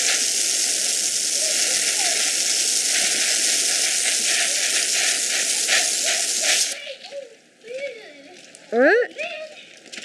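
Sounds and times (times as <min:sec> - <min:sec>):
hose water spray hissing: 0:00.0 - 0:06.8.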